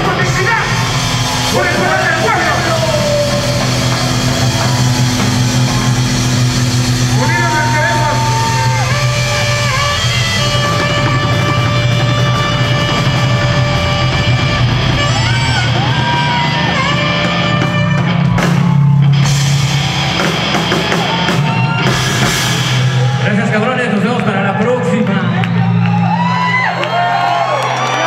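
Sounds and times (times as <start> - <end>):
held melody notes: 0.0 - 18.2
electric guitars: 0.0 - 23.2
drum kit: 0.0 - 27.8
bass: 0.0 - 28.0.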